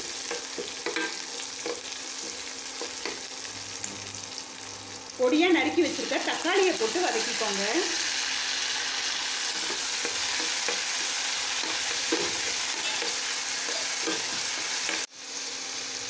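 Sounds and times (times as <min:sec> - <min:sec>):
vegetables sizzling in hot oil: 0:00.0 - 0:16.0
ladle scraping against pan: 0:11.6 - 0:15.1.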